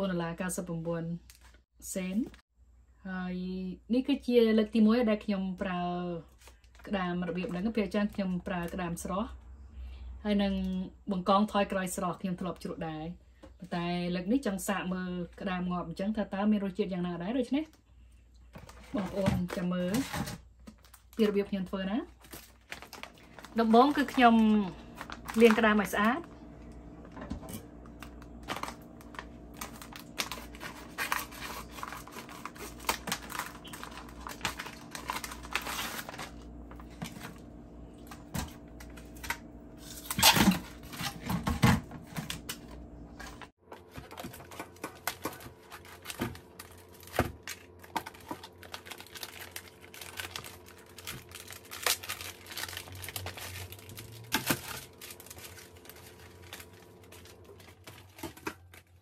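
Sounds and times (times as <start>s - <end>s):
plastic packaging crinkling and tearing: 18.6s - 21.4s, 22.0s - 26.3s, 27.5s - 37.4s, 42.0s - 59.0s.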